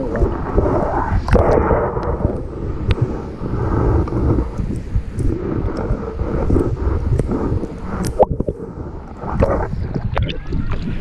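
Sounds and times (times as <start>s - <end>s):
underwater churning rumble: 0.0s - 11.0s
sharp underwater clicks and pops: 4.0s - 8.6s.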